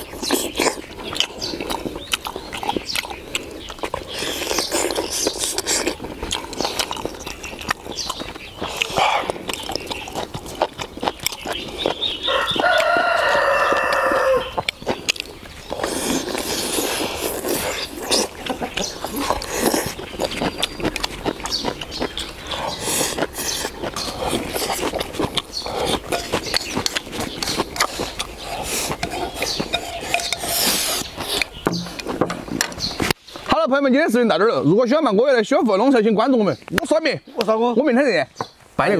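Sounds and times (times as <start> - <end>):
people eating: 0.0 - 33.6
rooster crowing: 12.2 - 14.6
chopsticks clicking against bowls: 29.0 - 30.7.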